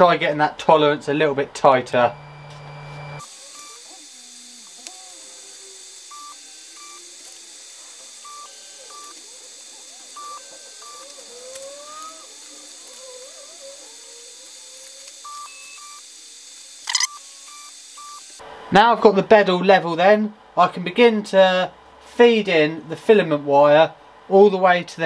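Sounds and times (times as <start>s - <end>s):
stepper motors whining: 2.0s - 18.4s
printer short high beeps: 10.1s - 11.2s, 16.9s - 18.3s.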